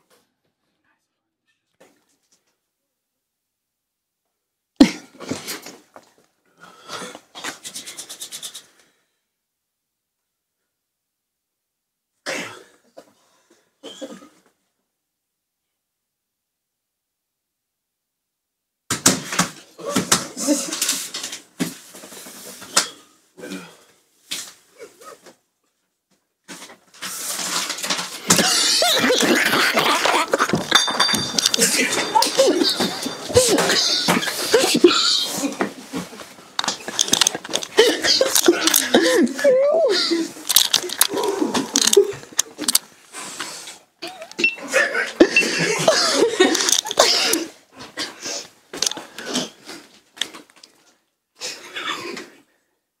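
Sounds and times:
hands rubbing together: 7.4s - 8.8s
stifled laughter and squeals: 28.3s - 36.2s.

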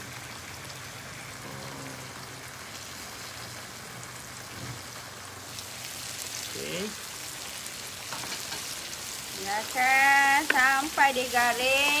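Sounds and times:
oil sizzling in a frying pan: 0.0s - 12.0s.

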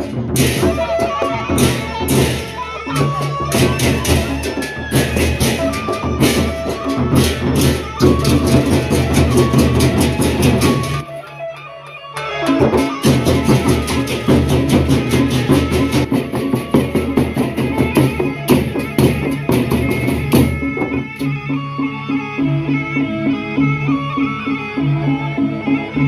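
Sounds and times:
barrel drums beaten with sticks: 0.0s - 11.0s, 12.7s - 21.0s.

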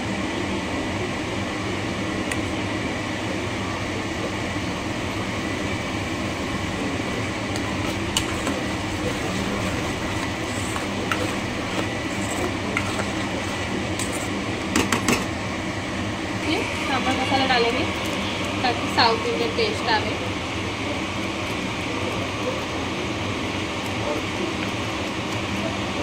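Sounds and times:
motor humming: 5.1s - 19.9s.

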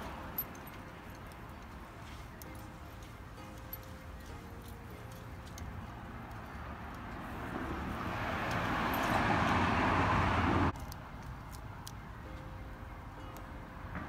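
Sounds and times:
car driving past: 6.0s - 10.8s.

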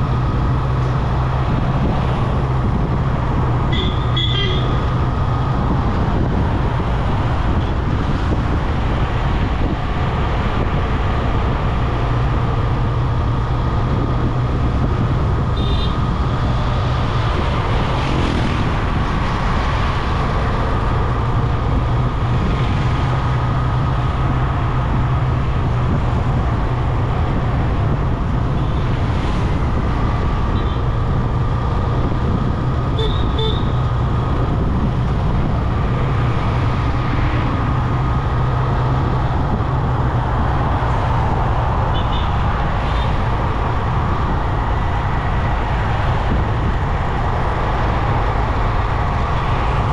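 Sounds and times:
vehicle horn toots: 3.7s - 4.8s, 33.0s - 33.8s.

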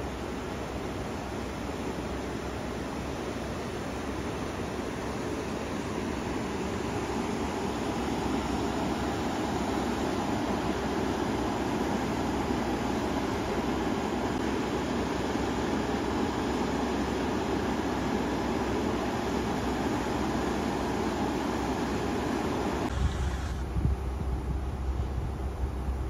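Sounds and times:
river rushing: 0.3s - 23.7s.

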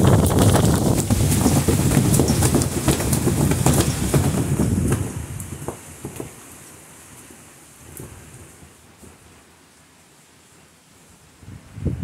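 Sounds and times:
storm wind gusting on microphone: 0.0s - 6.3s, 11.3s - 12.0s
wind rustling through trees: 0.0s - 12.0s.

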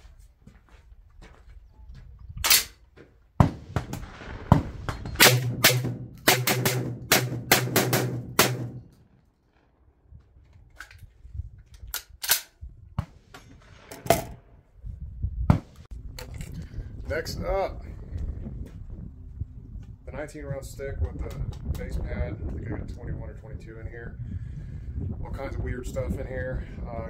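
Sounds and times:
shotgun firing: 3.4s - 8.9s.

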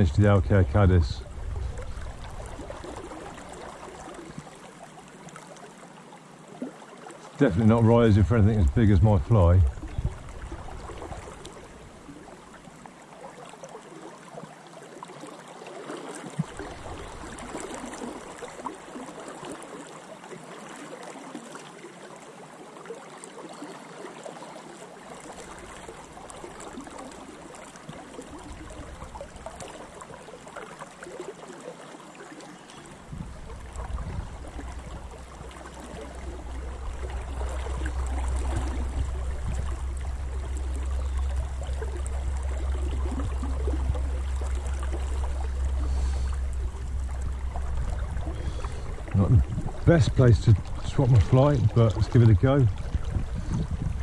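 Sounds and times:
low rumble: 0.0s - 3.0s, 7.6s - 11.9s, 33.0s - 54.0s
fast river flowing: 0.0s - 54.0s.

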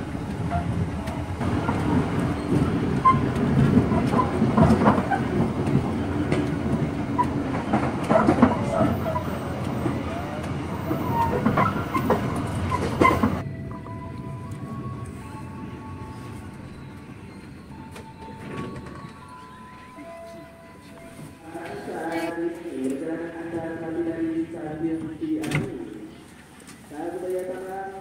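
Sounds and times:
train rumbling: 0.0s - 28.0s
wheels clacking over rail joints: 0.1s - 13.4s.

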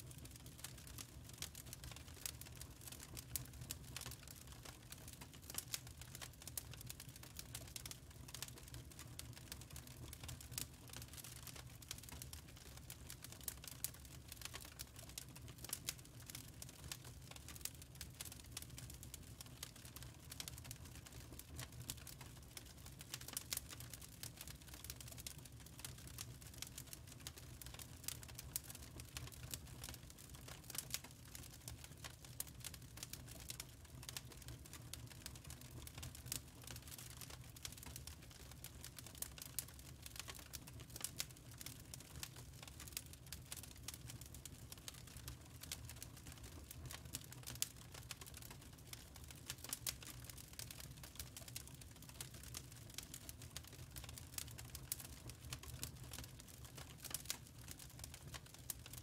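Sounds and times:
wood fire crackling and popping: 0.0s - 59.0s.

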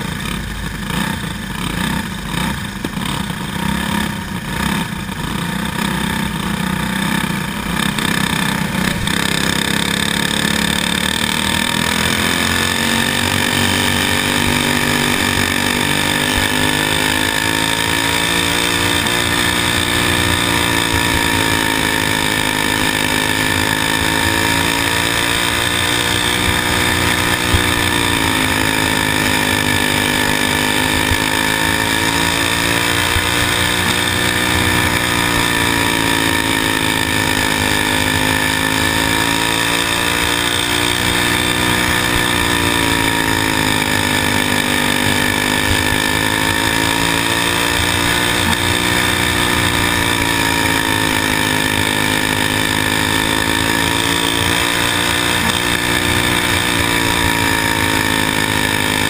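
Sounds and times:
racing kart engine: 0.0s - 59.0s.

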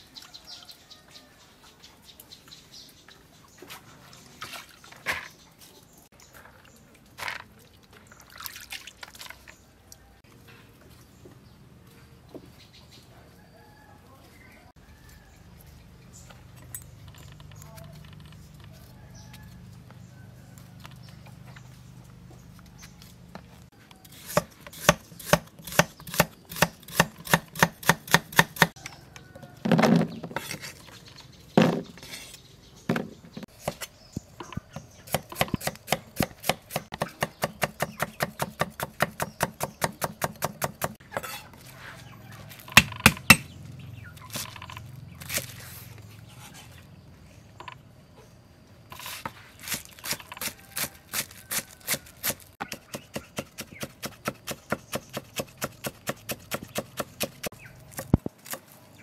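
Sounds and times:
knife chopping on wooden board: 35.1s - 41.4s, 52.2s - 58.6s.

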